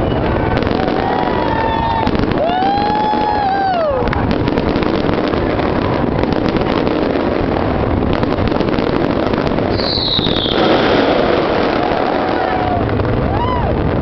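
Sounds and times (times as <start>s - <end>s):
whistling firework shell: 0.0s - 4.4s, 9.7s - 12.4s
fireworks bursting and crackling: 0.0s - 14.0s.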